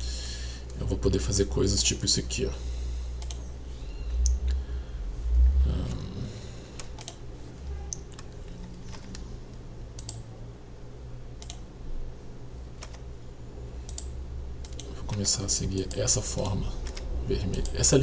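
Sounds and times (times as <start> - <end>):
low steady hum: 0.0 - 18.0
keyboard and mouse clicks: 3.2 - 3.5, 6.8 - 7.2, 7.9 - 9.2, 10.0 - 10.2, 11.4 - 11.6, 12.8 - 13.0, 13.9 - 17.8.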